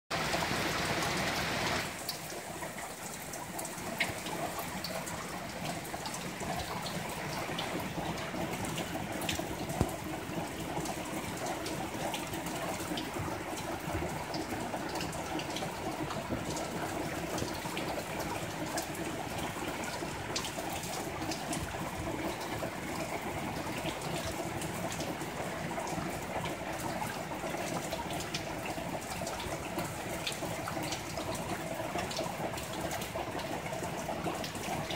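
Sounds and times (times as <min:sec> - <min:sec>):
heavy rain on wooden deck: 0:00.1 - 0:34.9
sharp raindrop taps: 0:06.0 - 0:18.0.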